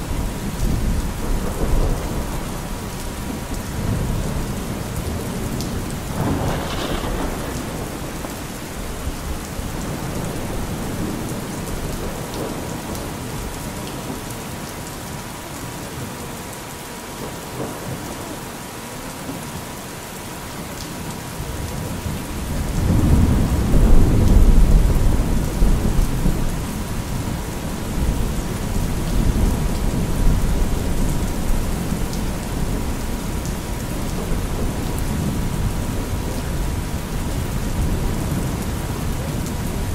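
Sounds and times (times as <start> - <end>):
steady rain: 0.0 - 39.9
thunder rolling: 6.1 - 12.6.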